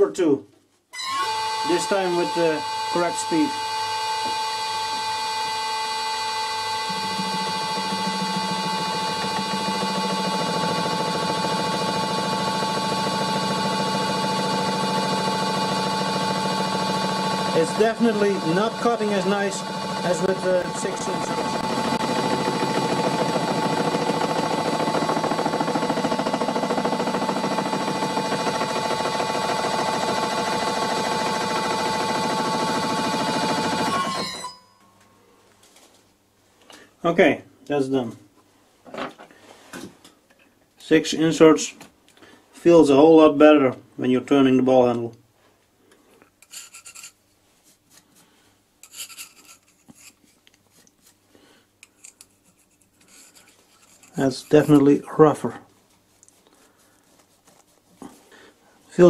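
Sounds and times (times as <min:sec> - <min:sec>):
milling machine cutting metal: 0:01.2 - 0:34.5
milling cutter rasping on metal: 0:46.4 - 0:47.2, 0:48.8 - 0:50.2, 0:52.0 - 0:54.8.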